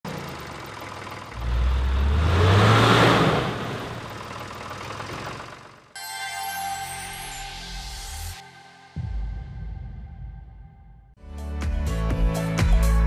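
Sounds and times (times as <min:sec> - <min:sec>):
engine revving up: 0:01.2 - 0:05.6.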